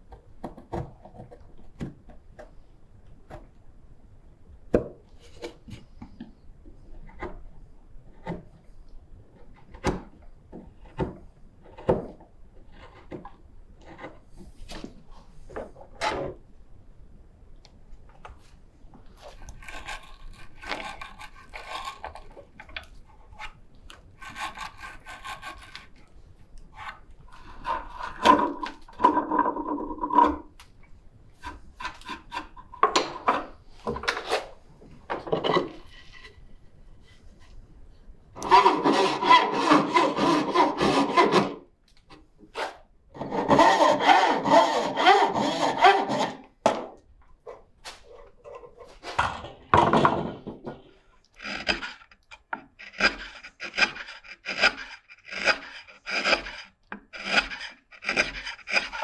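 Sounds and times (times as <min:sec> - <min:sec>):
hand tools scraping wood: 0:19.1 - 0:23.6, 0:24.2 - 0:26.1, 0:26.8 - 0:30.5, 0:31.4 - 0:34.6, 0:38.4 - 0:41.6, 0:42.5 - 0:46.5, 0:51.4 - 0:59.0
bow saw cutting wood: 0:19.2 - 0:22.3, 0:24.2 - 0:26.0, 0:38.4 - 0:41.6, 0:42.6 - 0:46.4, 0:51.4 - 0:52.2, 0:52.8 - 0:59.0.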